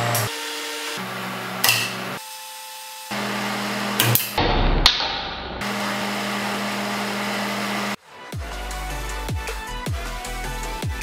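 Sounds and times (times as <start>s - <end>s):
spot welder humming: 0.0s - 4.4s.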